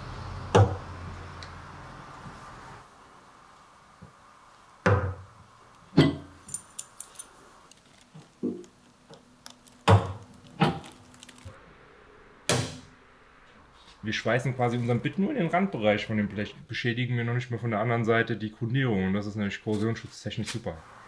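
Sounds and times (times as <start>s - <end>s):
metal clinks: 6.4s - 7.4s.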